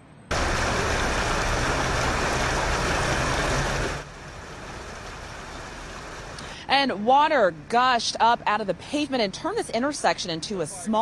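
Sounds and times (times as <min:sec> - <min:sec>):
water main gushing: 0:00.3 - 0:06.6.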